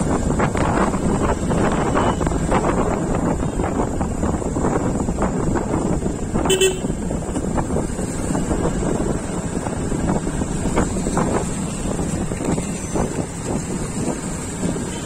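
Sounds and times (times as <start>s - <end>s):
motorcycle engine running: 0.0s - 15.0s
wind buffeting microphone: 0.0s - 15.0s
short vehicle horn toot: 6.4s - 7.0s.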